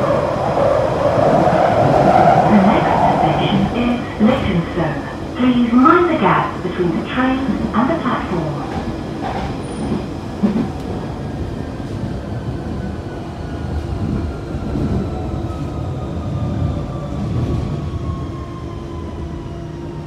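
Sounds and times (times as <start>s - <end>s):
thin train whine: 0.0s - 12.1s
train rumbling on track: 0.0s - 20.0s.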